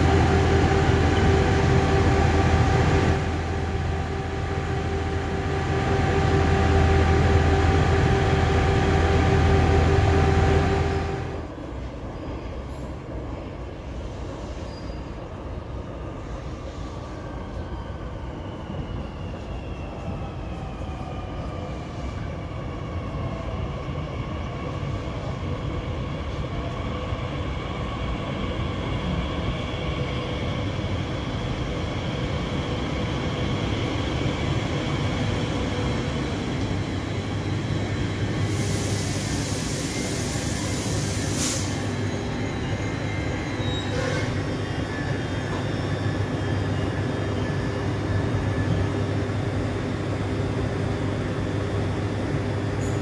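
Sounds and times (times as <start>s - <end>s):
electric train motor whine: 0.0s - 11.4s
train running rumble: 0.0s - 11.6s.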